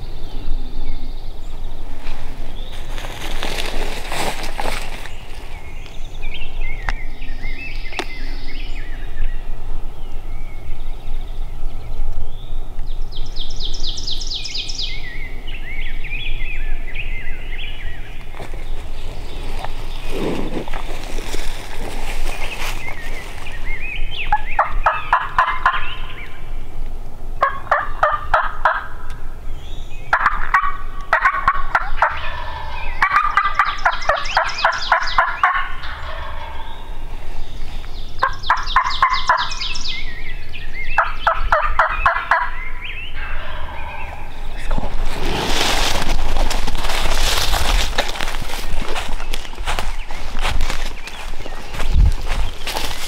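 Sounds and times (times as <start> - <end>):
turkey gobbling: 24.3 - 26.1, 27.4 - 28.9, 30.1 - 36.9, 38.2 - 39.6, 41.0 - 42.6, 43.2 - 44.3.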